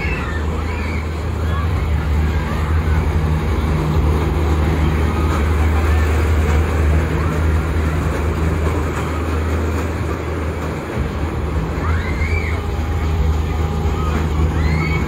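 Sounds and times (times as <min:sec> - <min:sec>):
faint crowd chatter: 0:00.0 - 0:15.0
ride machinery rumble: 0:00.0 - 0:15.0.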